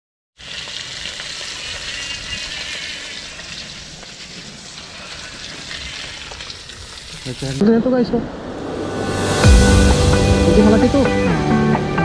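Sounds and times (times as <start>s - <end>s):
fish sizzling in hot oil: 0.4s - 7.6s.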